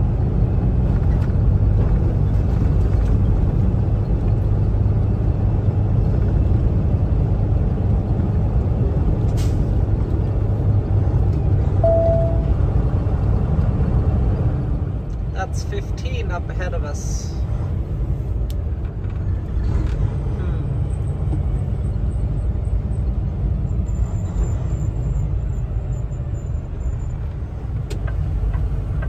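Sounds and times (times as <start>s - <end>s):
truck engine and road drone: 0.0s - 29.0s
short single-tone beep: 11.8s - 12.6s.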